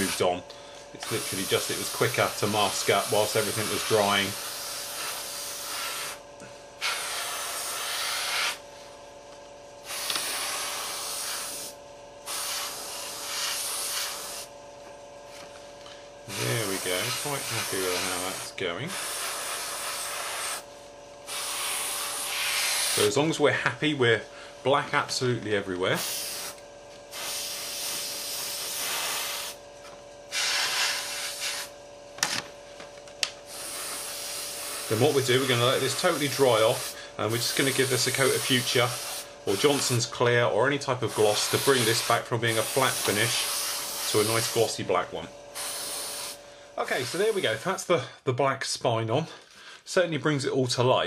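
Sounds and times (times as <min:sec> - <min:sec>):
airbrush spraying hiss: 0:00.0 - 0:00.2, 0:01.0 - 0:06.2, 0:06.8 - 0:08.6, 0:09.8 - 0:14.5, 0:16.3 - 0:23.2, 0:26.0 - 0:29.6, 0:30.3 - 0:31.8, 0:33.5 - 0:40.0, 0:41.0 - 0:44.8, 0:45.5 - 0:47.6.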